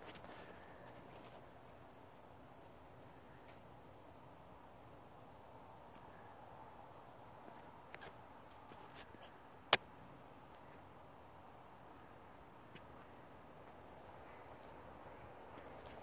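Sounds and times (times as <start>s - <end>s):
crickets trilling: 0.0s - 16.0s.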